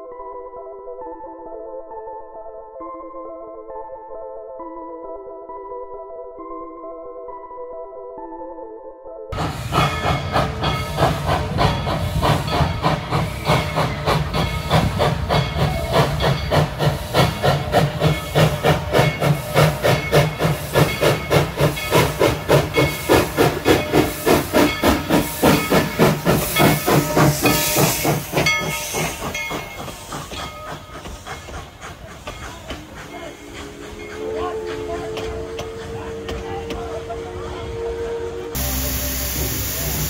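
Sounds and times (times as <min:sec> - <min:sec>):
steam hissing: 0:09.4 - 0:37.5, 0:38.2 - 0:40.0
steam locomotive chuffing: 0:09.4 - 0:40.0.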